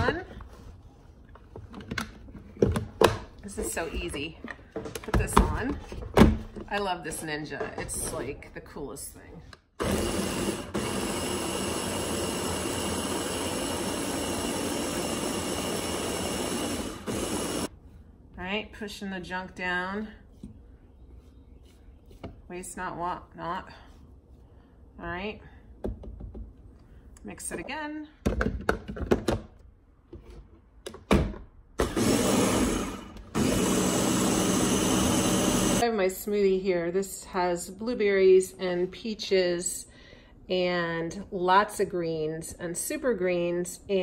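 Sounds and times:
blender motor running: 9.8s - 17.7s, 31.8s - 35.8s.

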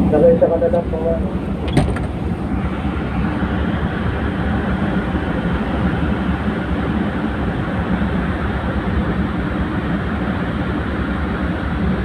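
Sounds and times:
diesel engines rumbling: 0.0s - 12.0s.

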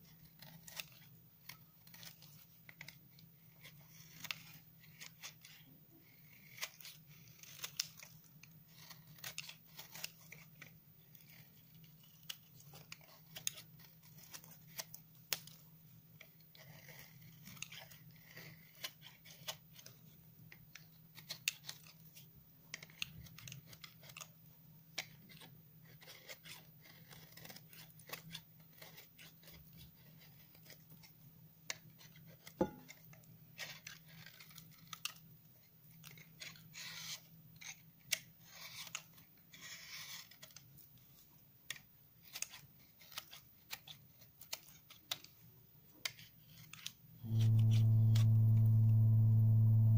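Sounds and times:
knife shaving hard soap: 0.0s - 47.2s
faint low hum: 47.2s - 49.9s.

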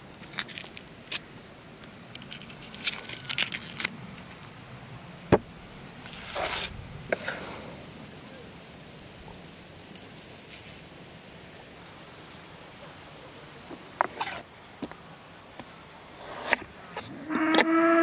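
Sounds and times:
long animal call: 17.2s - 18.0s.

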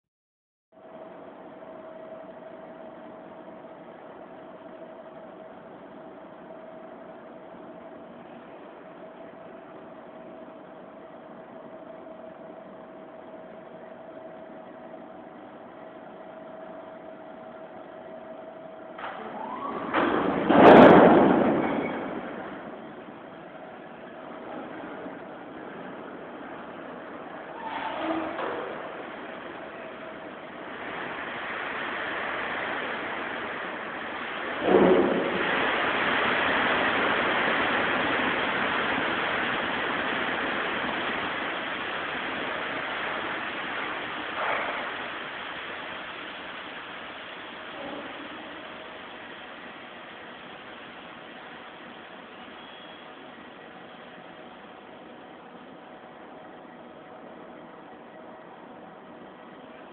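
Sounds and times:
machinery hum: 0.8s - 59.9s
rush of load spilling out: 19.1s - 53.2s.

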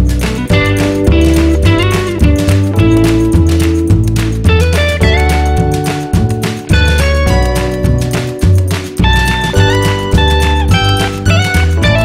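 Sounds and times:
guitar-led music with beat: 0.0s - 12.0s.

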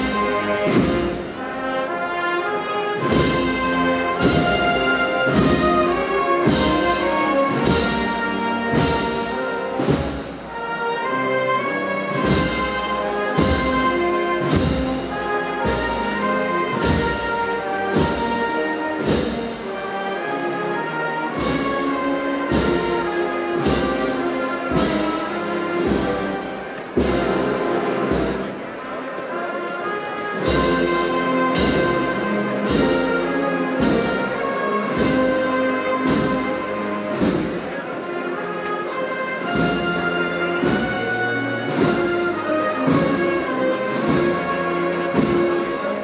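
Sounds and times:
drum strokes: 0.0s - 1.5s, 3.0s - 10.6s, 12.0s - 20.0s, 21.3s - 28.9s, 30.3s - 38.7s, 39.3s - 46.0s
wind band playing a march: 0.0s - 46.0s
heavy percussion hits: 3.0s - 10.6s, 12.1s - 19.8s, 30.4s - 37.8s.

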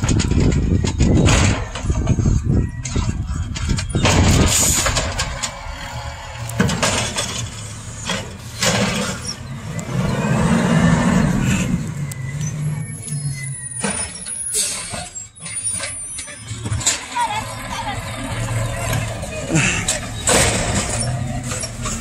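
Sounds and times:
diesel engine revving: 0.0s - 22.0s.

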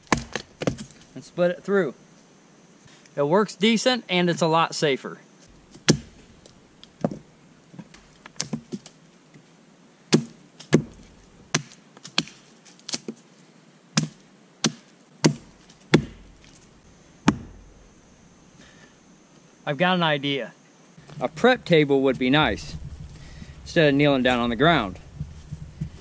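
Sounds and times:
hatchet splitting wood: 0.0s - 1.0s, 5.6s - 7.2s, 10.1s - 13.2s, 14.0s - 16.6s, 17.2s - 17.7s.

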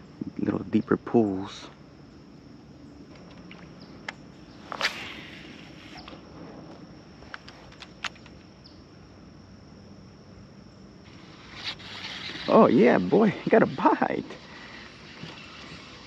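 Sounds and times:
thin high-pitched whine: 11.0s - 16.0s.

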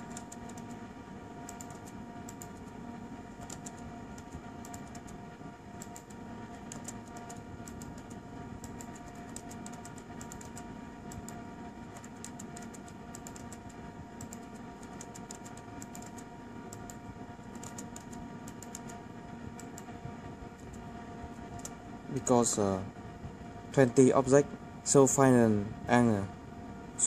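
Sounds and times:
laptop keyboard typing: 0.0s - 0.8s, 1.4s - 19.9s, 21.4s - 21.8s
faint steady hum: 0.0s - 27.0s.

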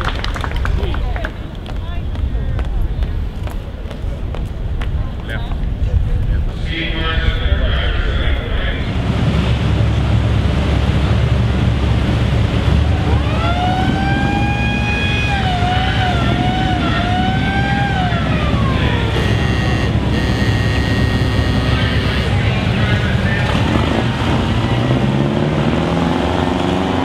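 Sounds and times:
old car engines idling: 7.9s - 25.3s
siren winding up and down: 13.0s - 22.3s.

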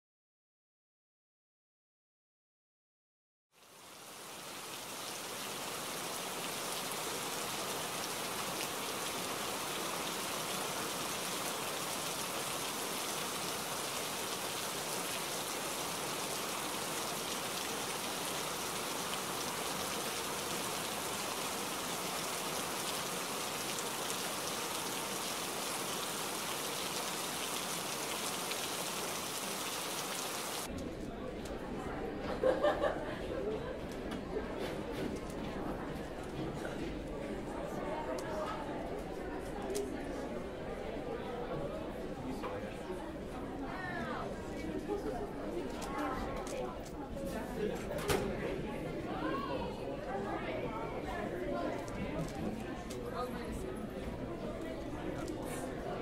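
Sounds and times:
steady rain falling: 3.6s - 30.7s.

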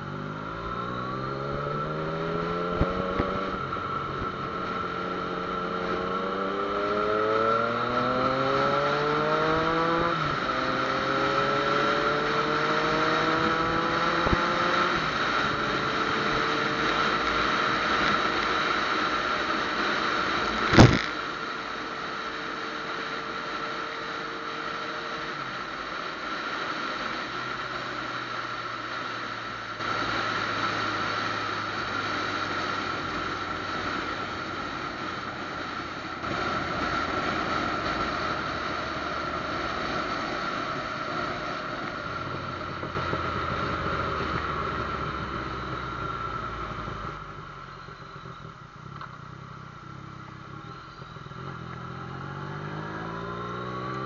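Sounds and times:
motorcycle engine accelerating: 0.0s - 54.0s
road and wind noise: 0.0s - 54.0s.

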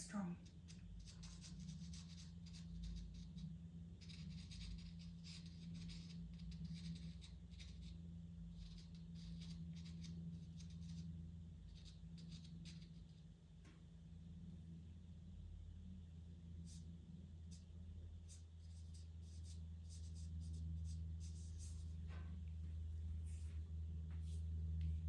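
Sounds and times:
faint low hum: 0.0s - 25.0s
pencil scratching on paper: 0.4s - 13.2s, 16.6s - 22.2s, 23.2s - 23.6s, 24.2s - 24.5s.

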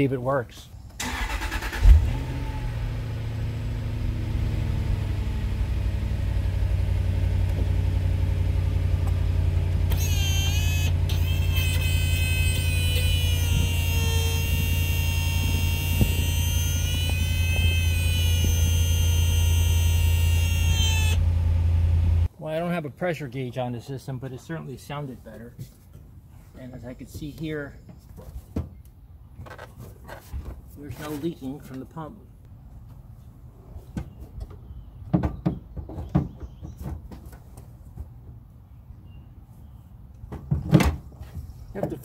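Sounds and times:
hydraulic pump humming: 9.9s - 22.3s
high wavering whine: 12.2s - 21.4s.

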